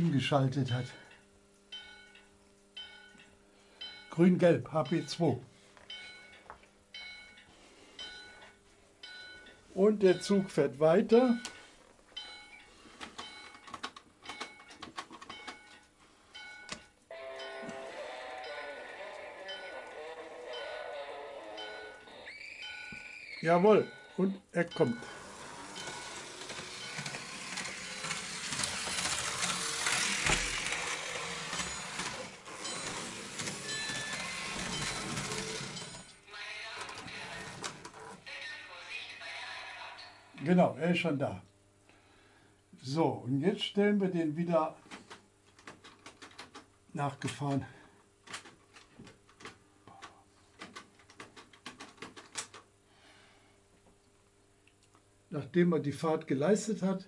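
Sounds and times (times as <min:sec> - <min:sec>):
faint steady hum: 0:00.0 - 0:57.0
motor hum: 0:24.8 - 0:36.3
model train wheels rattling: 0:25.0 - 0:36.1.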